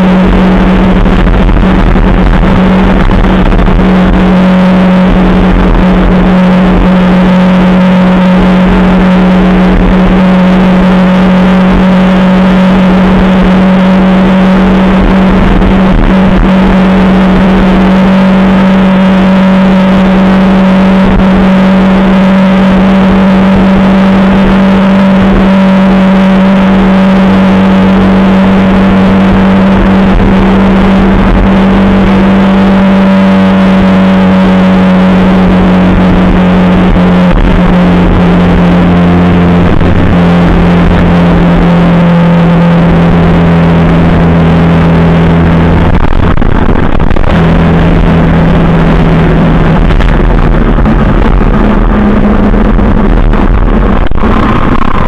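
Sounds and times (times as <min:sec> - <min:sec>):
motorcycle engine cruising: 0:00.0 - 0:55.0
road noise: 0:00.0 - 0:55.0
wind noise: 0:00.0 - 0:55.0.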